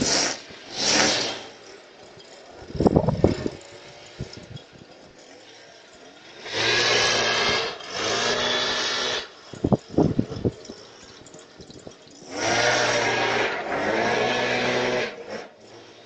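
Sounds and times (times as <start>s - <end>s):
leaf blower revving: 0.0s - 11.0s, 12.2s - 16.0s.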